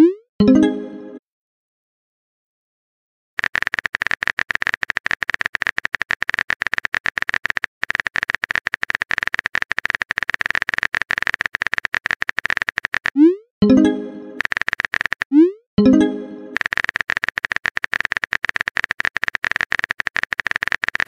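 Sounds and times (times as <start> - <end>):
rapid keyboard clicks: 3.4 - 13.2, 14.4 - 15.4, 16.5 - 21.0.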